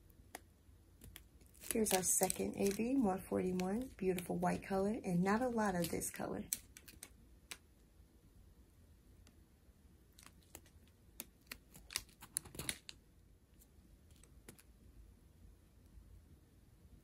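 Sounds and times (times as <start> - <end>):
plastic bags crinkling and clicking: 1.0 - 4.2, 10.2 - 13.0.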